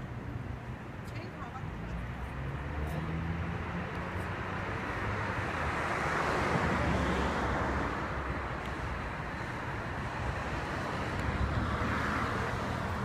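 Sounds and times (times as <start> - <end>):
vehicle passing: 1.5 - 8.5.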